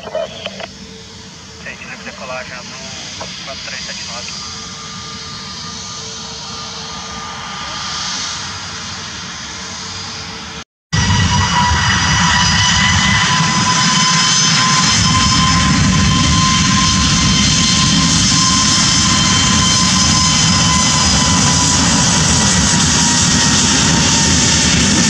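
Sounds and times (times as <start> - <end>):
jet engines roaring at takeoff: 0.0 - 25.0.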